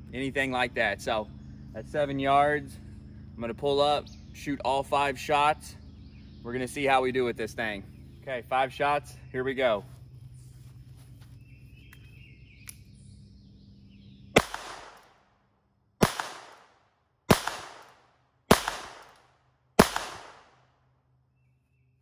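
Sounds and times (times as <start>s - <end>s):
revolver gunshots with echo: 14.3s - 15.3s, 16.0s - 20.7s.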